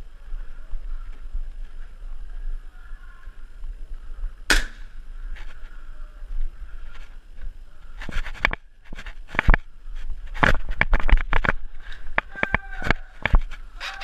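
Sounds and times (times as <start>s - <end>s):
airsoft gun cracks: 4.5s - 4.9s.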